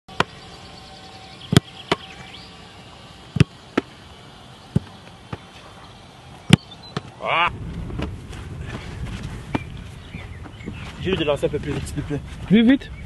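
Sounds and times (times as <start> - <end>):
football kick thuds: 3.3 - 3.9, 4.7 - 5.5.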